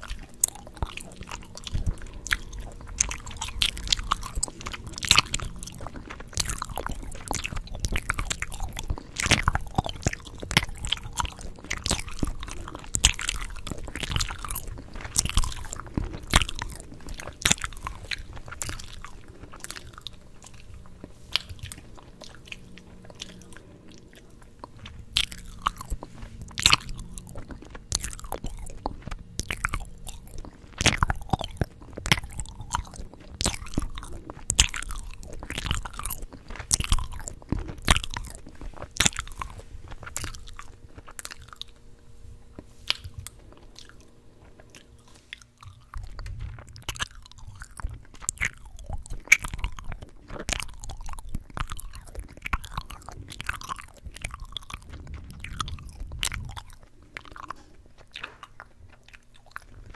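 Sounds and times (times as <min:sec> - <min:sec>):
gum chewing smacks and clicks: 0:00.0 - 0:59.9.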